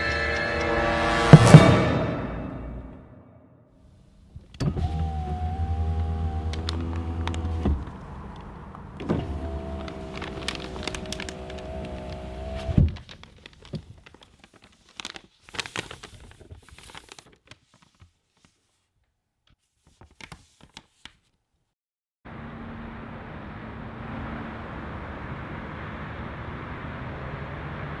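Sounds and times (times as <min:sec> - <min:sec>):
low hum: 0:00.0 - 0:03.6
paper wrapper crinkling: 0:06.5 - 0:08.0, 0:09.5 - 0:21.4.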